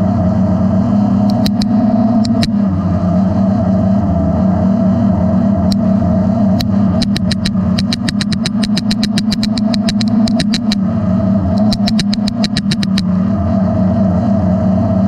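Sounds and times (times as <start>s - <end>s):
drone motors humming: 0.0s - 15.0s
fast sharp clicks: 1.3s - 2.5s, 6.6s - 10.8s, 11.5s - 13.1s.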